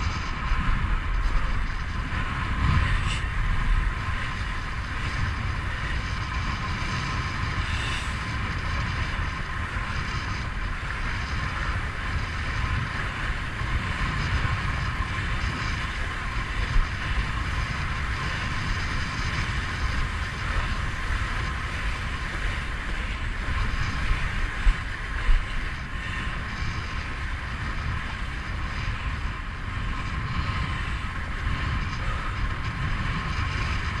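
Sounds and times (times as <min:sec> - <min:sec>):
water rushing along board: 0:00.0 - 0:34.0
wind buffeting microphone: 0:00.0 - 0:34.0.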